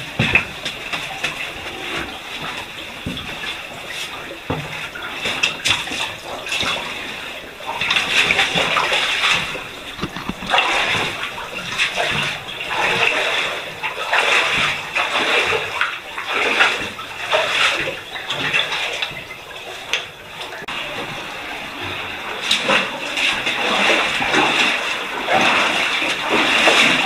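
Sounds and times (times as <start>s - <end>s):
boots splashing through water: 0.0s - 27.0s.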